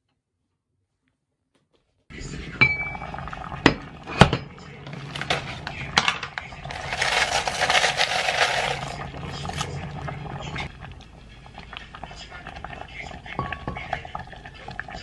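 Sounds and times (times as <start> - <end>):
pot lid and utensils clinking: 4.2 - 9.7.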